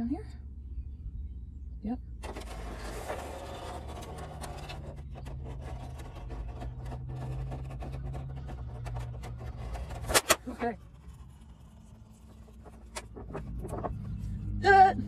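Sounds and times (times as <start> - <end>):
steady low hum: 0.0 - 15.0
oil filter being unscrewed: 2.2 - 14.3.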